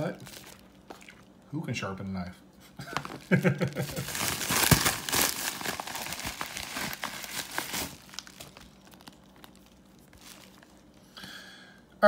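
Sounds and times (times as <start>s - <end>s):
paper envelope crinkling: 2.9s - 11.0s.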